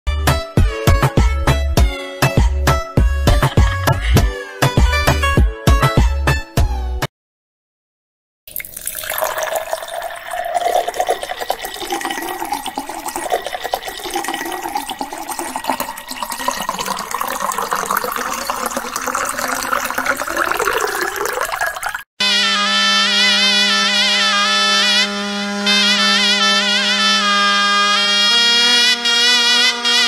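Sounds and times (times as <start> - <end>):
water pouring into glass bowl: 8.5 - 22.1.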